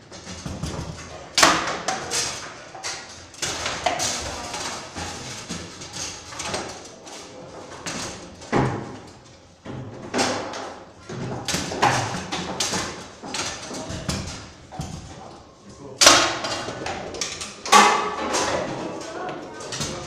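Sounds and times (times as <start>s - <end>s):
foosball rods clacking: 0.0s - 15.4s, 16.0s - 20.0s
foosball ball knocked and rebounding: 0.1s - 5.7s, 7.8s - 15.2s, 16.0s - 18.9s.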